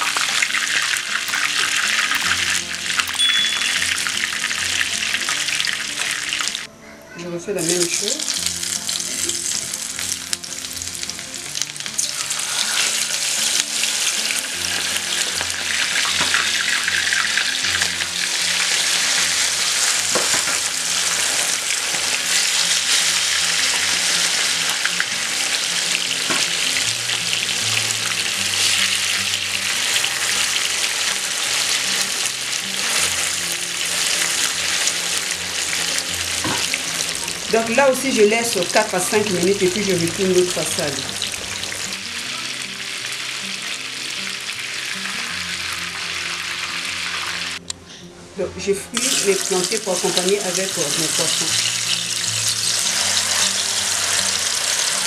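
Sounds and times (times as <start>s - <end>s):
fish sizzling in hot oil: 0.0s - 6.7s, 7.6s - 47.6s, 48.9s - 55.0s
metal spoon moving through oil: 49.0s - 55.0s.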